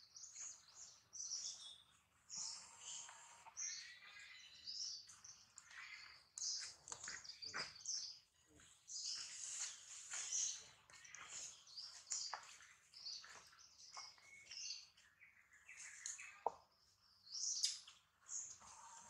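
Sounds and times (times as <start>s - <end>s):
birds chirping: 0.0s - 19.0s.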